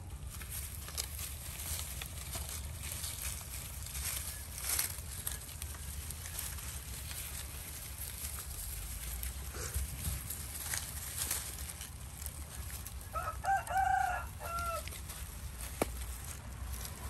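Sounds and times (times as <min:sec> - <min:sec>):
rooster crowing: 0:13.0 - 0:15.0.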